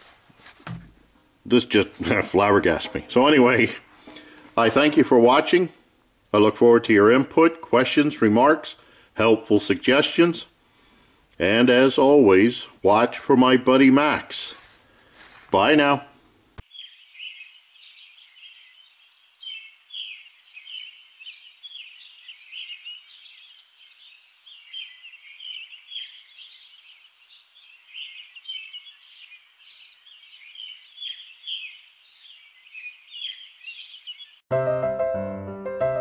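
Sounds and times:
small birds chirping: 16.6 - 34.5.

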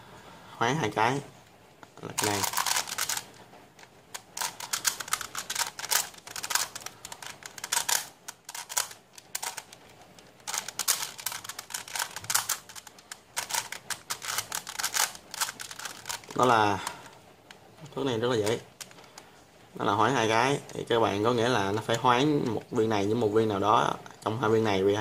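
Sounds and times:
plastic puzzle clicking: 2.2 - 17.2, 18.4 - 19.3.

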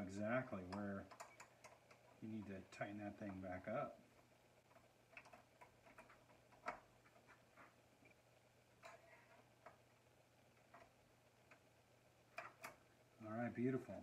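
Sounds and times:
faint steady hum: 0.0 - 14.0
clicks and taps of metal parts: 0.6 - 2.2.

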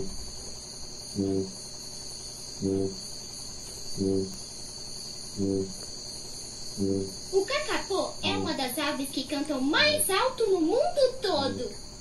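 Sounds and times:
bird deep booming call: 0.0 - 0.2, 1.2 - 1.6, 2.6 - 3.0, 5.4 - 5.8, 6.8 - 7.2
high insect chorus: 0.0 - 12.0.

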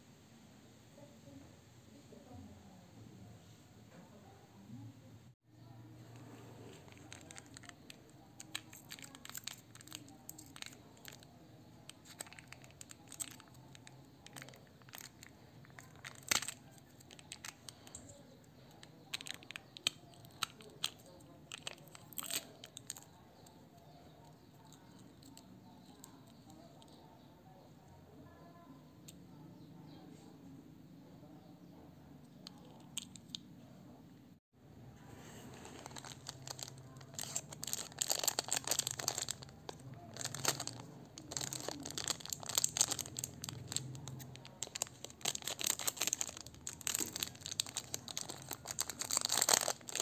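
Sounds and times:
foil lid crinkling and tearing: 12.0 - 18.0, 35.6 - 50.0.

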